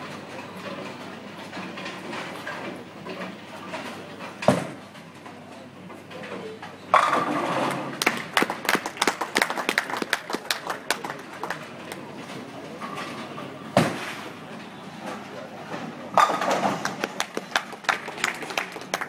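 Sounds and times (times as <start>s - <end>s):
bowling pins crashing: 7.0s - 8.0s
bowling ball rolling: 7.0s - 8.3s.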